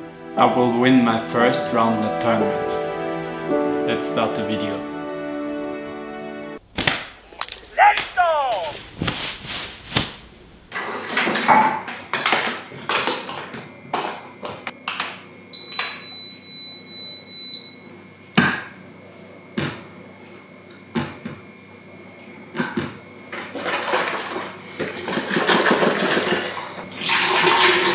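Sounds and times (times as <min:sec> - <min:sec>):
high electronic beep: 0:15.6 - 0:17.9.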